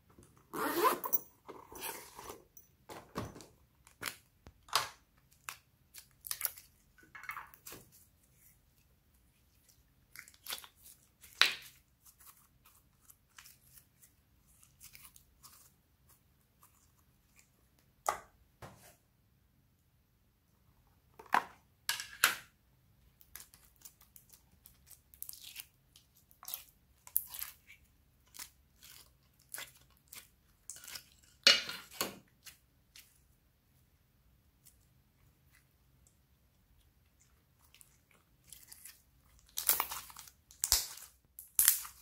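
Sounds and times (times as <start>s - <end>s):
slime crackling and popping: 38.8s - 42.0s.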